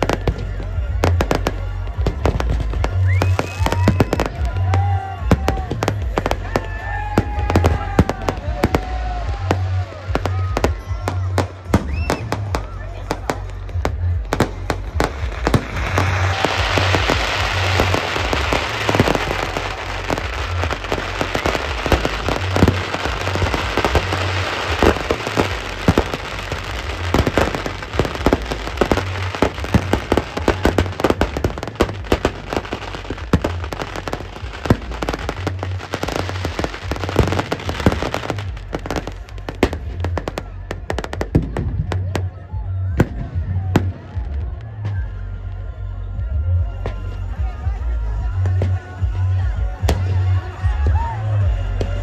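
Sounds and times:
fireworks banging: 0:00.0 - 0:45.1
dense firework crackling: 0:00.0 - 0:45.6.

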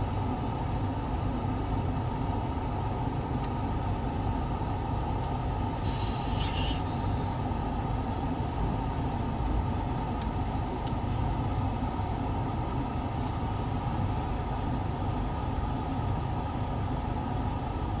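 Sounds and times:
insect chirps: 0:05.7 - 0:07.4.

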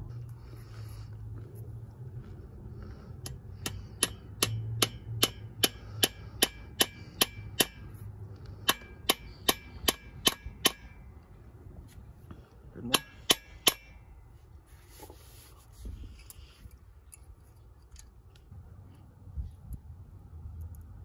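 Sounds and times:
steel hammer tapping metal: 0:03.2 - 0:08.0, 0:08.6 - 0:11.0, 0:12.8 - 0:14.0.

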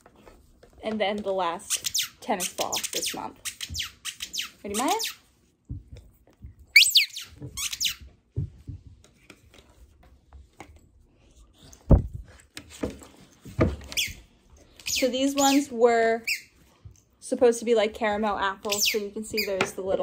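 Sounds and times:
squeaky ball squeaks: 0:01.7 - 0:05.2, 0:06.7 - 0:08.1, 0:13.9 - 0:14.2, 0:14.8 - 0:16.6, 0:18.6 - 0:19.8.

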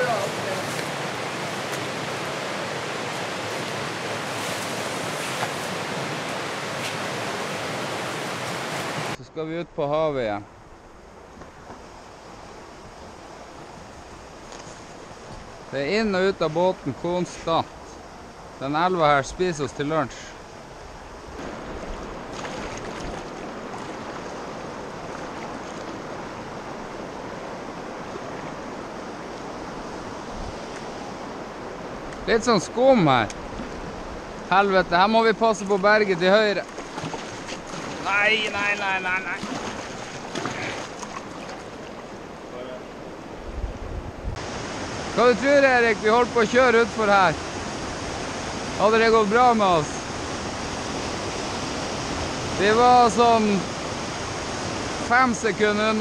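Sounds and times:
river rapids rushing: 0:00.0 - 0:09.2, 0:21.4 - 0:43.4, 0:44.4 - 0:56.0.

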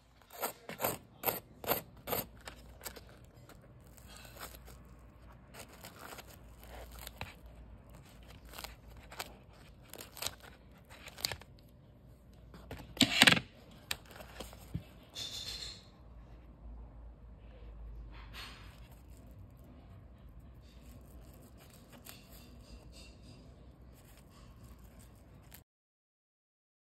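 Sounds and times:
crackles of batter crust: 0:00.0 - 0:12.7, 0:18.2 - 0:25.6
scissors snipping crunchy fried food: 0:00.2 - 0:11.5.

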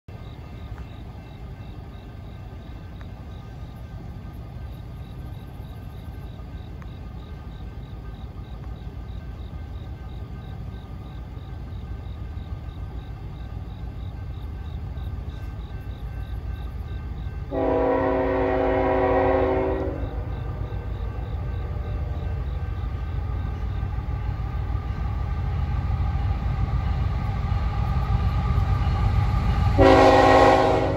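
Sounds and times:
crossing bell dinging: 0:00.1 - 0:24.2
freight train rumble: 0:00.1 - 0:30.9
locomotive air horn blast: 0:17.5 - 0:20.3, 0:29.8 - 0:30.9.

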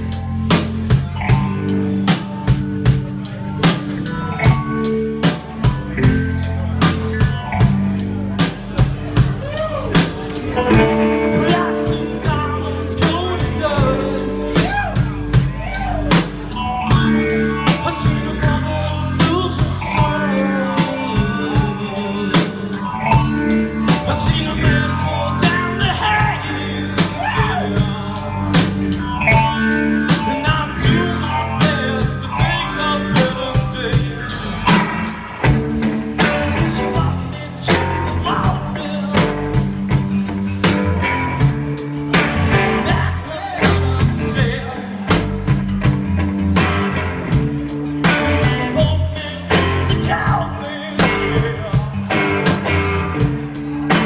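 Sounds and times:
bass guitar: 0:00.0 - 0:54.0
drum kit beat: 0:00.0 - 0:54.0
electric guitar: 0:00.0 - 0:54.0
man singing into a microphone: 0:09.6 - 0:35.2, 0:36.2 - 0:40.0, 0:42.4 - 0:45.6, 0:48.0 - 0:53.2.

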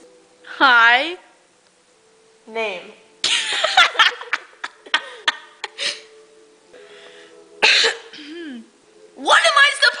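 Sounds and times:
girl laughing: 0:03.2 - 0:06.1.

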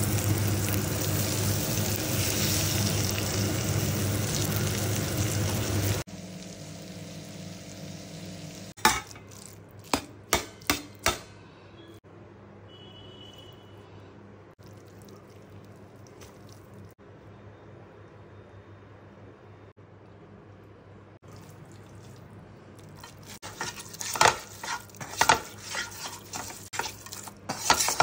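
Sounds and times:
eggs sizzling in oil: 0:00.0 - 0:10.1, 0:21.3 - 0:28.0
utensil knocking against pan: 0:09.9 - 0:11.4.

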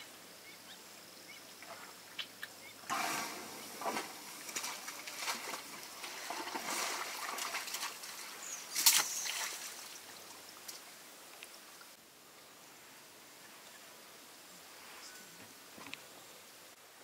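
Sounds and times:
elephant tearing grass: 0:02.9 - 0:08.0.

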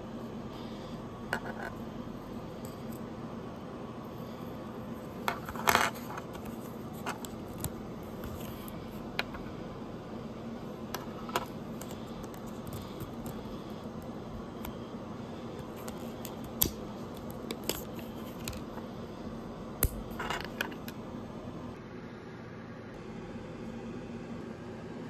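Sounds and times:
faint steady hum: 0:00.0 - 0:25.0.

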